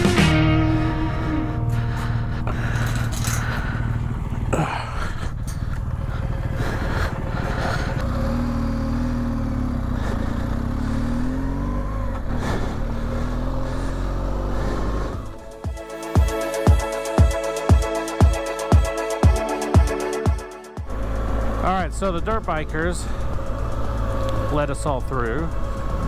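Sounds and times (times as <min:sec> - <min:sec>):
motorcycle engine: 0:00.0 - 0:26.0
gate chain clanking: 0:02.7 - 0:03.6.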